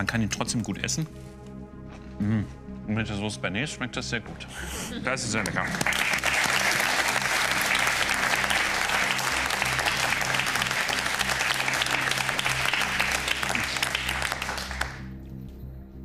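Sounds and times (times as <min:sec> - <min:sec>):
low background music: 0:00.0 - 0:16.0
audience applauding: 0:05.4 - 0:15.1.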